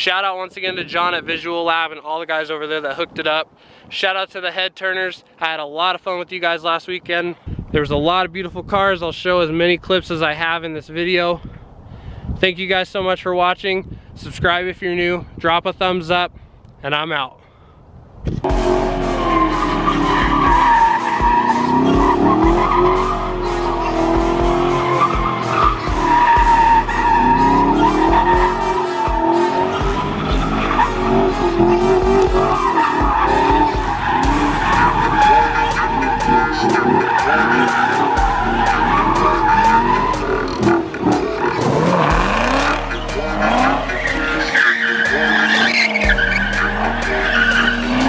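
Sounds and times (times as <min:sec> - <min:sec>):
car engine revving: 0:18.4 - 0:48.0
tires squealing: 0:18.4 - 0:48.0
background music with steady beat: 0:18.5 - 0:48.0.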